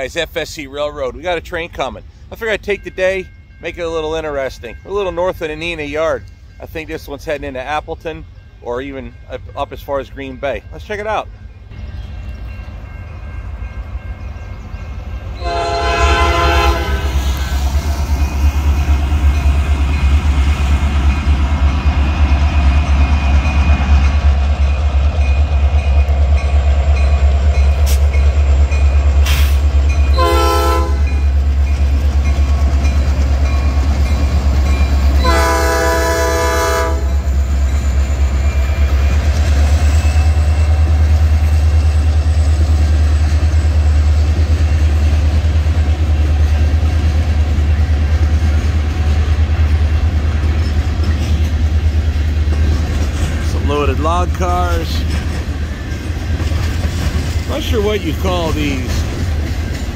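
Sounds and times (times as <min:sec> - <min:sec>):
locomotive air horn blasts: 0:15.4 - 0:17.6, 0:30.1 - 0:31.2, 0:35.2 - 0:37.2.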